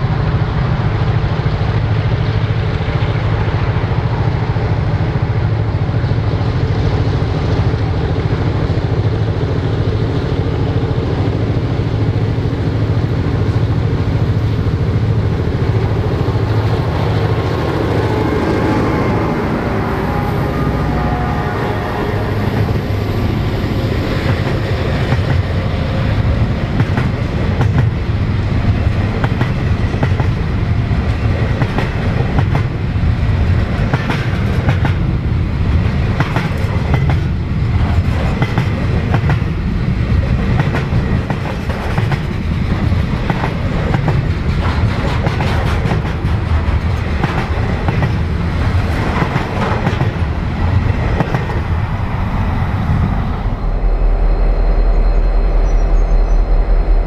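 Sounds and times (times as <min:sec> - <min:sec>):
freight train rumbling past: 0:00.0 - 0:57.0
wheels clicking over rail joints: 0:36.1 - 0:51.8.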